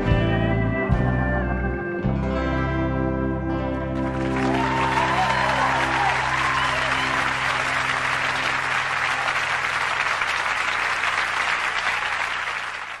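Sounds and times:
audience applauding: 0:03.9 - 0:13.0.

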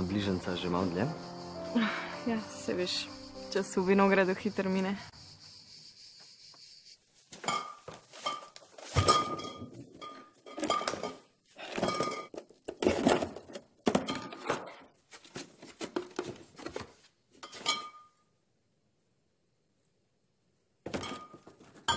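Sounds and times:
glass bottles clinking: 0:07.4 - 0:12.4, 0:17.4 - 0:18.2, 0:20.9 - 0:21.9.

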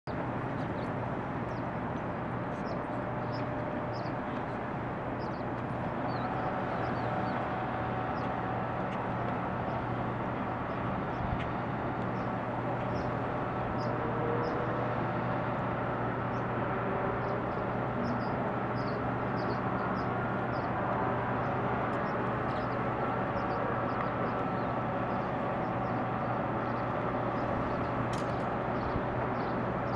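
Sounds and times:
constant low hum: 0:00.1 - 0:29.9.

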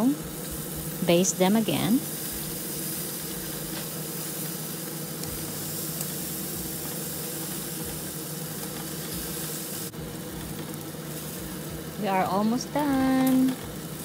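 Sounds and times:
meat sizzling on a grill: 0:00.0 - 0:14.0
steady low hum: 0:00.0 - 0:14.0.

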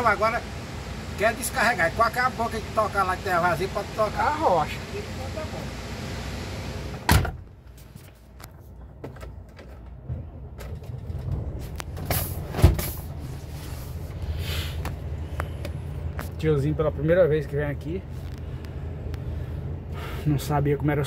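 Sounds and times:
diesel truck engine running: 0:00.0 - 0:07.1.

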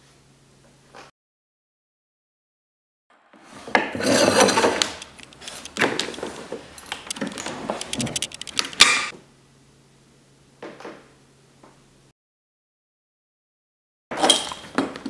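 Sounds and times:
rubbing and scraping on wood: 0:03.5 - 0:06.6
pliers clicking and tapping: 0:06.8 - 0:09.1.

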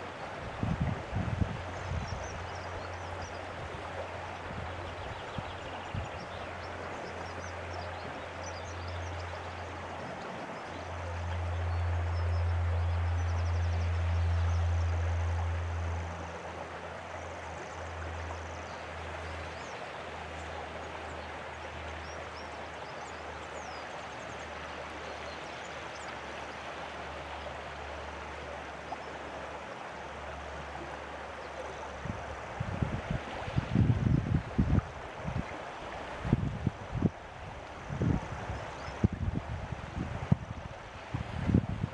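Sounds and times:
wind rumble on microphone: 0:00.0 - 0:19.8, 0:31.6 - 0:41.9.

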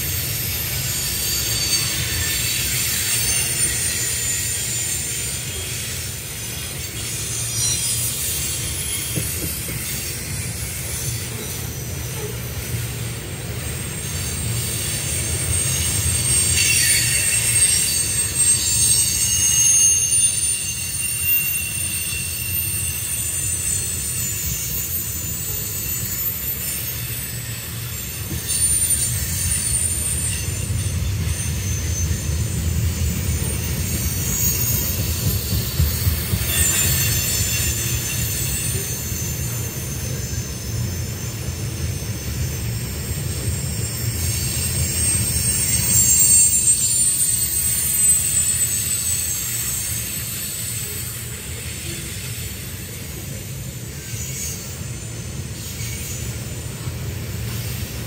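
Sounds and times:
freight train rumbling past: 0:00.0 - 0:58.0
wheel flange squeal: 0:00.0 - 0:58.0.

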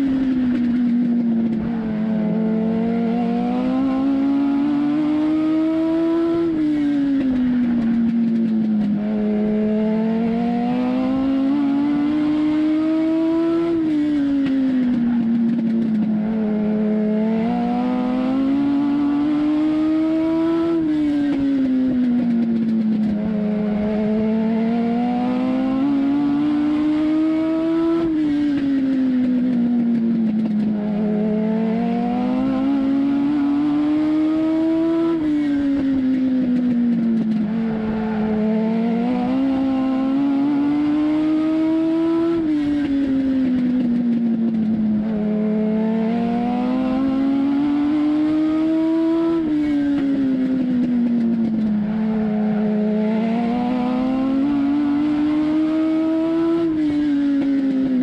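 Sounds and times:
race car engine revving: 0:00.0 - 0:58.0.

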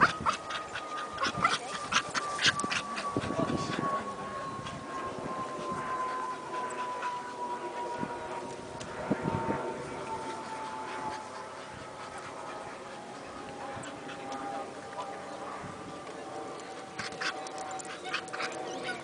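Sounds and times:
dogs whining and whimpering: 0:00.0 - 0:03.8.

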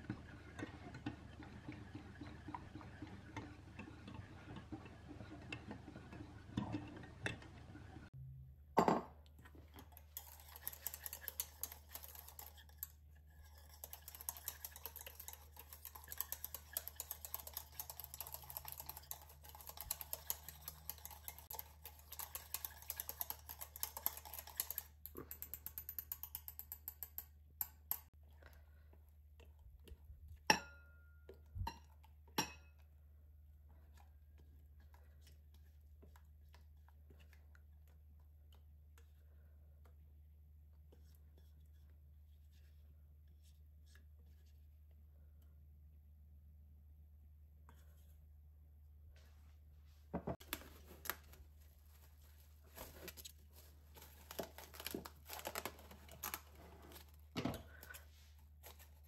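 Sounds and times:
whisk clicking against saucepan: 0:00.0 - 0:08.0, 0:09.7 - 0:28.1.

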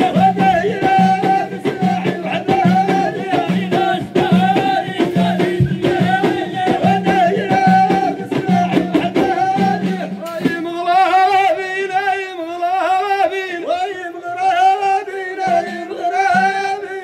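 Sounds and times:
hand frame drums beating: 0:00.0 - 0:10.9, 0:15.4 - 0:17.0
solo voice singing ornamented line: 0:00.0 - 0:11.8
men singing: 0:00.0 - 0:17.0.

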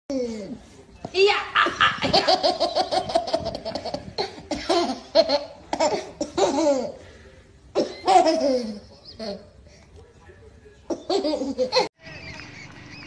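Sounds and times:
baby laughing: 0:01.6 - 0:07.0, 0:07.8 - 0:09.5, 0:10.9 - 0:11.9.

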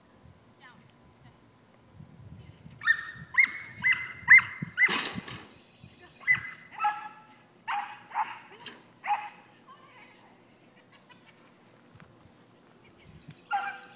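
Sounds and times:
dog barking high-pitched: 0:02.8 - 0:04.9, 0:06.2 - 0:09.4, 0:13.5 - 0:13.9.

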